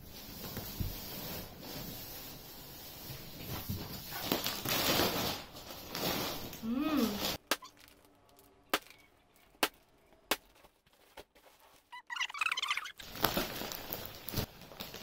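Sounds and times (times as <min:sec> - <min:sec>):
plastic wrapping crinkling: 0:00.1 - 0:12.2, 0:12.9 - 0:15.0.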